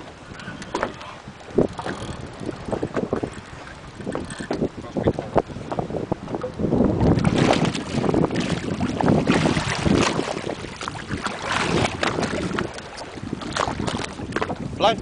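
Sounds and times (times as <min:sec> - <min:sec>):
wind buffeting microphone: 0:00.0 - 0:15.0
fish thrashing in water: 0:07.2 - 0:14.5.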